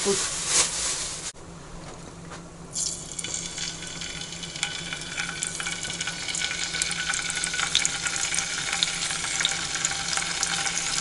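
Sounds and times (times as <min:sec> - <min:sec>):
eggs sizzling in a pan: 0:02.8 - 0:11.0.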